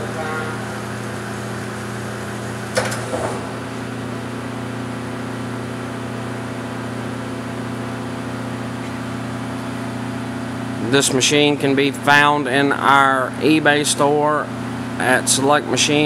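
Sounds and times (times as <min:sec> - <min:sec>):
lathe humming: 0:00.0 - 0:05.0.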